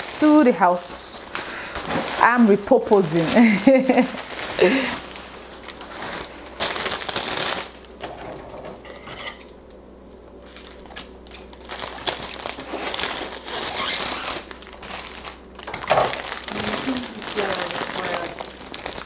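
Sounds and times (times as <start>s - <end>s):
plastic wrapping crinkling: 0.0s - 8.2s, 10.4s - 19.0s.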